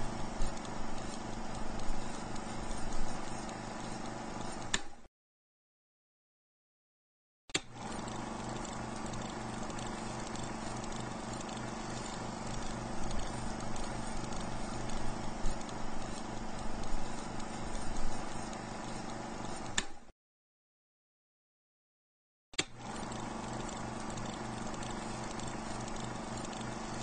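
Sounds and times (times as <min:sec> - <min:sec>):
film projector whirring and clattering: 0:00.0 - 0:05.0, 0:07.6 - 0:20.1, 0:22.6 - 0:27.0
projector click: 0:04.0 - 0:05.0, 0:18.5 - 0:20.0.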